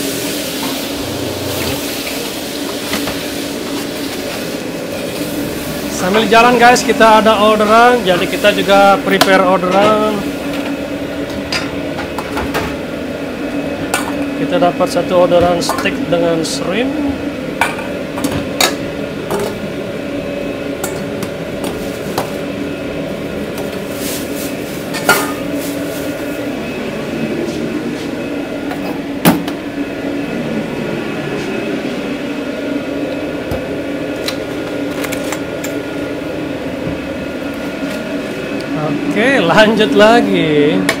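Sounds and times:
kitchen equipment humming: 0.0s - 41.0s
utensils and pans clinking: 24.9s - 25.8s.

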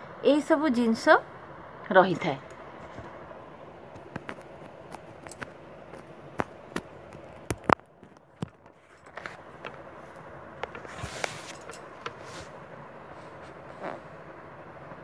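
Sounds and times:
low steady hiss: 0.0s - 15.0s
phone handling clicks and taps: 3.9s - 9.8s.

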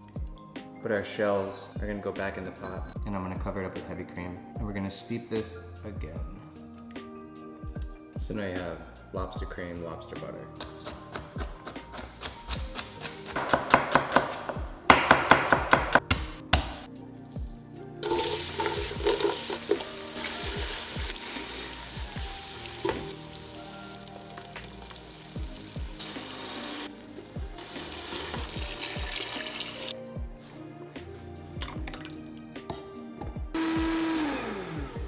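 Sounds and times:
knife chopping on cutting board: 10.6s - 16.8s
stirring in a metal pot: 18.0s - 21.6s
vegetables sizzling in a pot: 18.0s - 30.0s.

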